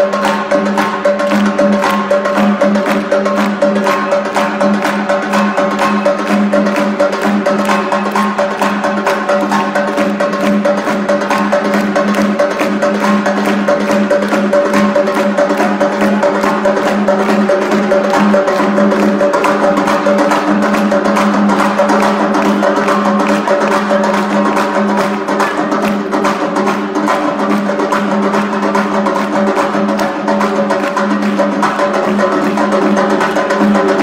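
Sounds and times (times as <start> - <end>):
fast drum rhythm: 0.0 - 34.0.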